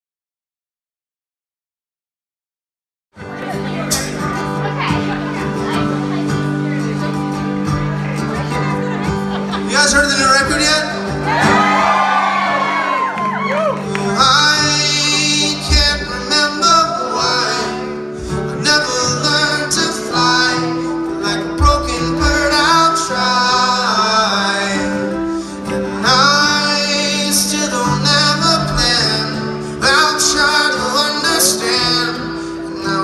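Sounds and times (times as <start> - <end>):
banjo: 3.2 - 11.7, 14.6 - 33.0
acoustic guitar: 3.2 - 33.0
drums: 15.6 - 16.3, 21.6 - 22.7.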